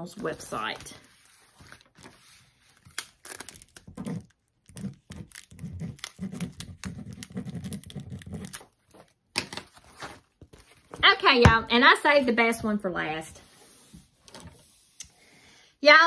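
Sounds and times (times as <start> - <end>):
pen scratching on canvas: 4.0 - 8.5.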